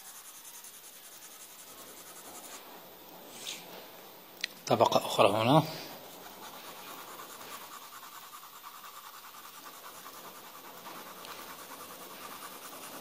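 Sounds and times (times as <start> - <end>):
pencil scratching on paper: 0.0 - 2.8, 5.2 - 13.0.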